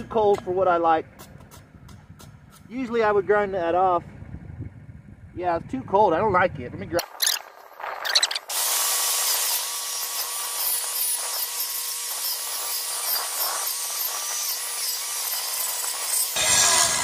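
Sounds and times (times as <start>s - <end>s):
angle grinder grinding steel: 7.0s - 17.0s.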